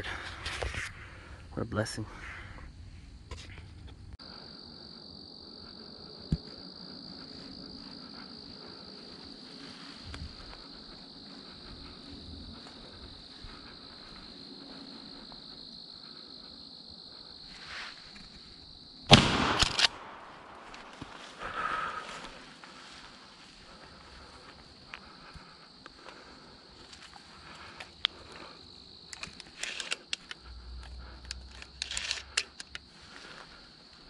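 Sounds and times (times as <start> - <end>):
insects droning: 0.0 - 34.0
sharp snap: 19.1 - 20.6
shotgun shot: 19.1 - 20.6
faint sharp cracks: 19.1 - 21.5.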